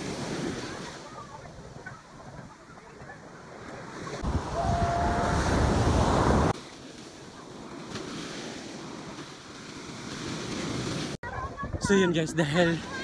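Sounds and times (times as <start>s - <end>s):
surf breaking on beach: 0.0s - 11.8s
wind buffeting microphone: 4.1s - 6.6s, 11.2s - 12.2s.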